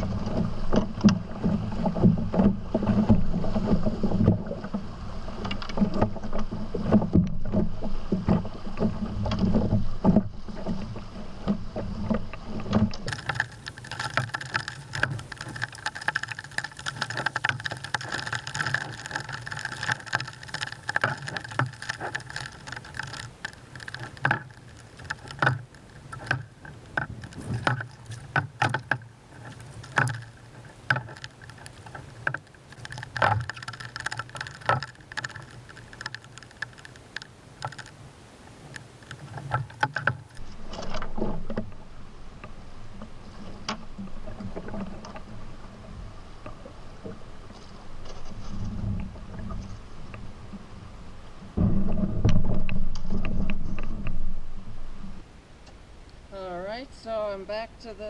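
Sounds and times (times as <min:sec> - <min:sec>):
rushing water: 0:00.0 - 0:58.0
sharp clicks and knocks: 0:05.4 - 0:41.8
lapping water: 0:13.1 - 0:40.4
low rumble on microphone: 0:40.4 - 0:55.5.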